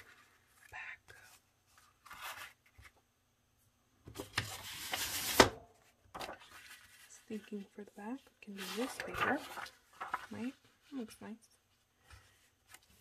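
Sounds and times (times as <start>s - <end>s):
paper rustling and sliding: 1.6s - 3.0s, 4.2s - 7.6s, 8.5s - 10.9s
paper scraping: 8.5s - 10.6s
sharp paper crackle: 8.6s - 10.6s.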